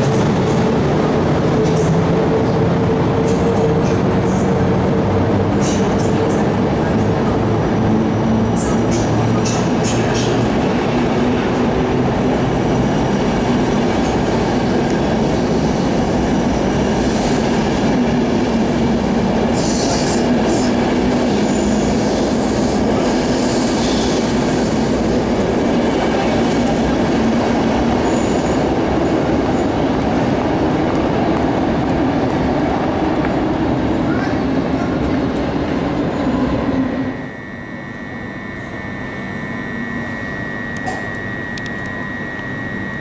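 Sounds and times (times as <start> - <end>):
train wheels rumbling on rails: 0.0 - 36.8
high wheel squeals: 28.0 - 28.7
low hum: 36.3 - 43.0.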